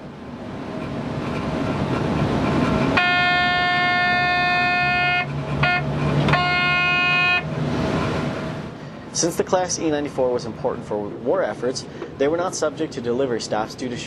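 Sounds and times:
locomotive rumble: 0:00.0 - 0:13.2
locomotive horn blasts: 0:02.9 - 0:07.6.

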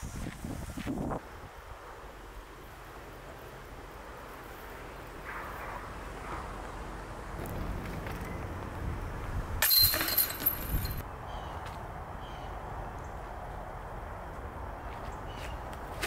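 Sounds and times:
disc golf basket chains jingling: 0:09.6 - 0:11.0.

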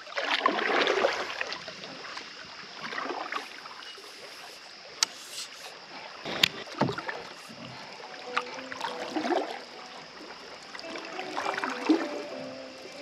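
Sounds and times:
water lapping and dripping: 0:00.0 - 0:13.0
paddle swishes: 0:02.8 - 0:07.7.

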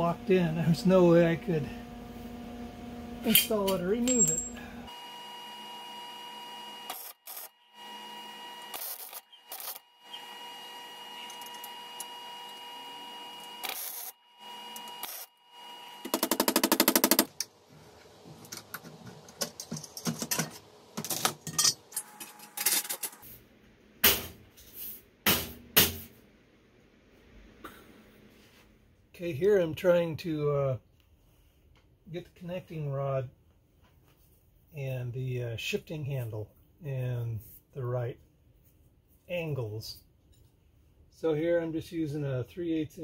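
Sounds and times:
metal parts clanking: 0:03.3 - 0:04.6, 0:19.4 - 0:23.2.

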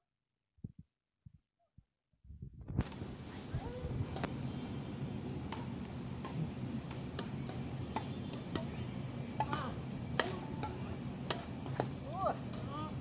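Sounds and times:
low background hum: 0:03.0 - 0:13.0
rackets hitting shuttlecock: 0:05.4 - 0:12.9.

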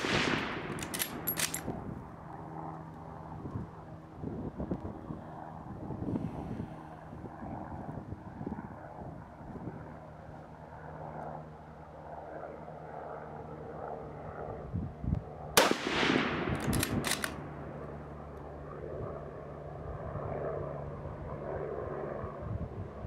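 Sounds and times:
rifle shot with echo: 0:00.0 - 0:01.7, 0:15.6 - 0:17.8
rifle bolt metallic clicks: 0:00.1 - 0:01.7, 0:15.6 - 0:17.9.

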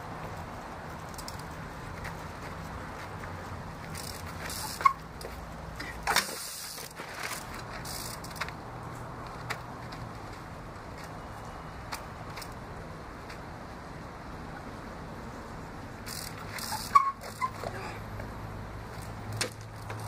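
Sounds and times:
bicycle clacking on boulder: 0:01.0 - 0:08.6, 0:16.0 - 0:17.9, 0:18.9 - 0:20.0
bike clatter: 0:03.8 - 0:08.6, 0:16.1 - 0:17.8, 0:18.9 - 0:20.0.

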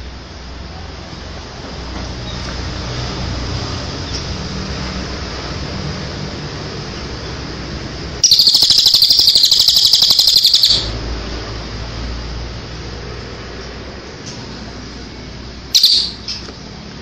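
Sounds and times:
songbird trill: 0:08.2 - 0:11.0, 0:15.7 - 0:16.5.

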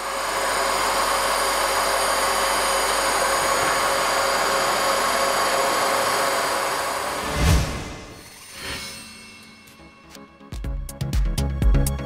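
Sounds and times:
grinder grinding steel shaft: 0:00.0 - 0:09.5.

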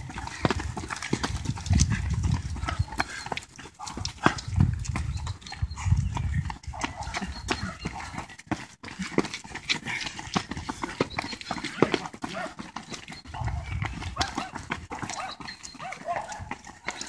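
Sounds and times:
running footsteps on brick path: 0:00.0 - 0:17.0.

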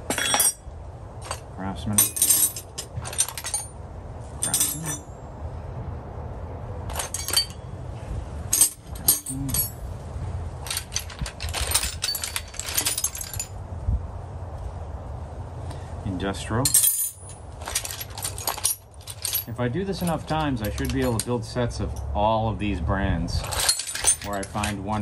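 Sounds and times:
metal wrenches clinking: 0:00.0 - 0:05.2, 0:06.9 - 0:07.8, 0:08.4 - 0:10.0, 0:10.6 - 0:13.6, 0:16.6 - 0:22.1, 0:23.4 - 0:25.0.

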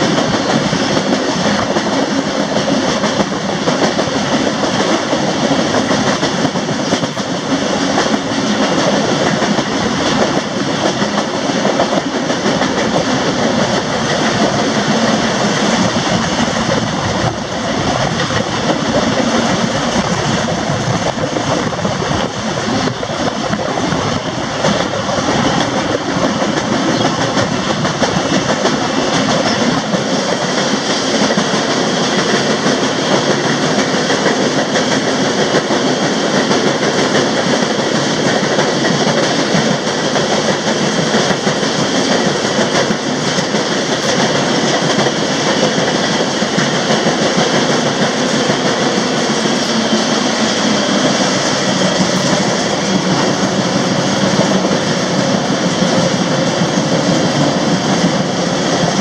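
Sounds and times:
rushing air: 0:00.0 - 0:59.0
train wheels rolling on track: 0:00.0 - 0:59.0.

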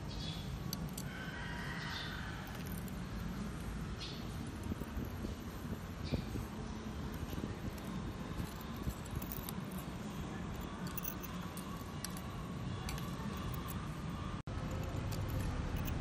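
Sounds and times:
metal tongs clicking on shells: 0:10.6 - 0:13.8.

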